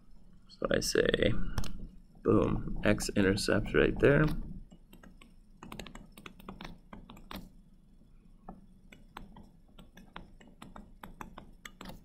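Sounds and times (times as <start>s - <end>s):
stylus tapping on tablet screen: 8.4s - 12.0s.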